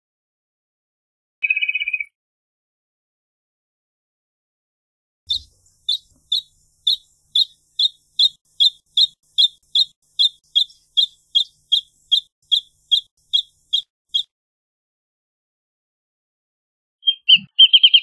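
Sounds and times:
bird singing high piping notes: 0:05.3 - 0:14.3, 0:17.0 - 0:18.0.

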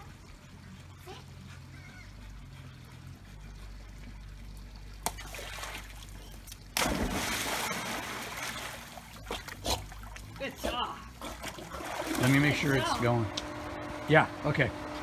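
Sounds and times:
dog swimming splashes: 0:00.0 - 0:13.1
ball smacking into water: 0:05.0 - 0:10.2
dog splashing into pool: 0:05.0 - 0:13.0.

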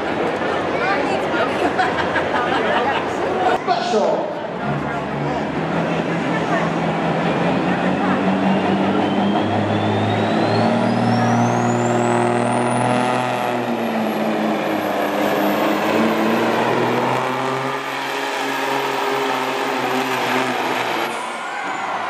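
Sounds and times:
diesel truck engine at full throttle: 0:00.0 - 0:22.0
high turbo whine: 0:03.6 - 0:22.0.

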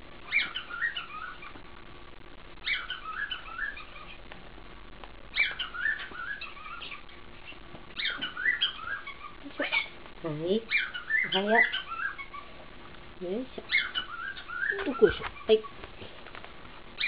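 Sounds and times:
cockatoo chattering calls: 0:00.2 - 0:01.6, 0:02.6 - 0:04.2, 0:05.3 - 0:10.0, 0:10.7 - 0:12.6, 0:13.6 - 0:15.8.

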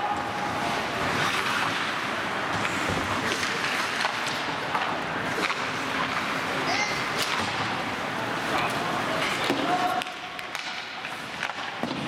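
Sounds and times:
skates scraping on ice: 0:00.2 - 0:12.0
hockey sticks and puck clicking: 0:02.5 - 0:07.9, 0:08.6 - 0:12.0.

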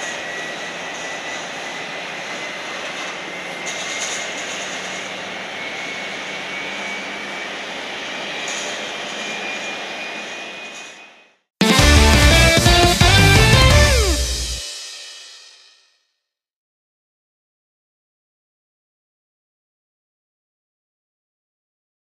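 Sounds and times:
jet engine spooling up: 0:00.0 - 0:15.1.

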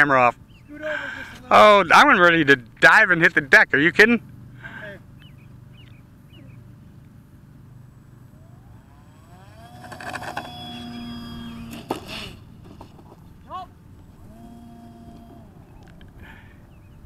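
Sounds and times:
model plane motor whine: 0:07.6 - 0:17.0.

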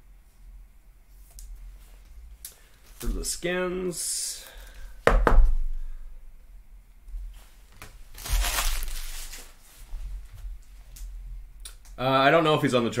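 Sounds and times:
card wrapper crinkling and tearing: 0:08.1 - 0:09.6.

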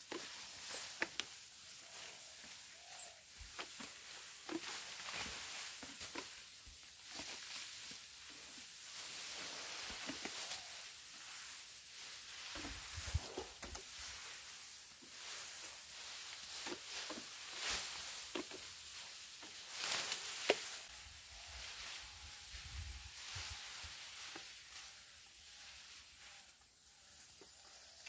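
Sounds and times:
grass rustling: 0:00.0 - 0:28.0.

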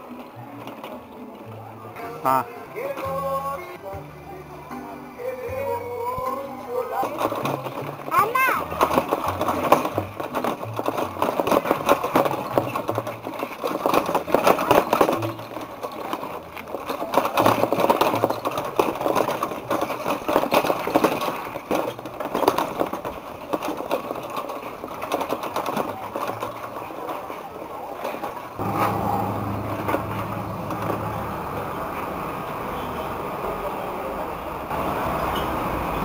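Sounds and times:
bicycle rattling and clicking: 0:06.7 - 0:32.1.

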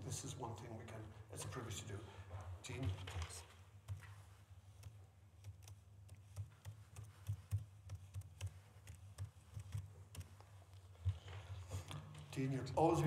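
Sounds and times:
computer keyboard typing: 0:02.8 - 0:10.5.

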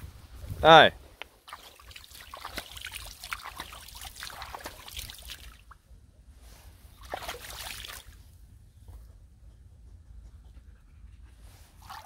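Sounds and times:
puppy lapping and splashing water: 0:01.4 - 0:05.8, 0:07.0 - 0:08.2, 0:11.7 - 0:12.0.

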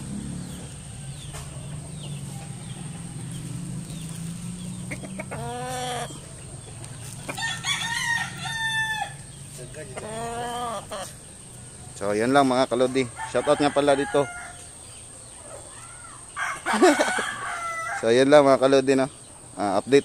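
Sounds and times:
rooster crowing: 0:07.3 - 0:09.4, 0:12.8 - 0:14.8, 0:16.3 - 0:18.2.

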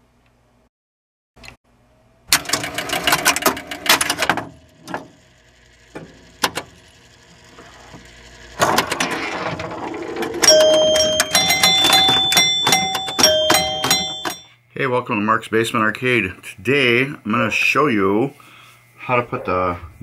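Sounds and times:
pinball machine relays clattering: 0:02.4 - 0:05.2, 0:08.6 - 0:14.5.

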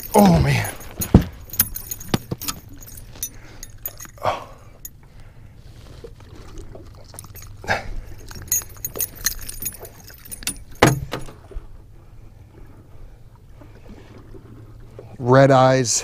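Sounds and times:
handling knocks: 0:00.0 - 0:03.3
metallic jingling and clicking: 0:00.0 - 0:05.0, 0:07.0 - 0:11.5.

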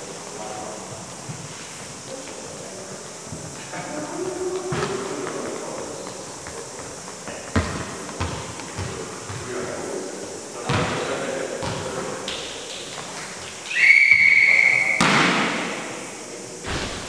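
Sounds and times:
referee whistle blast: 0:13.7 - 0:15.4.

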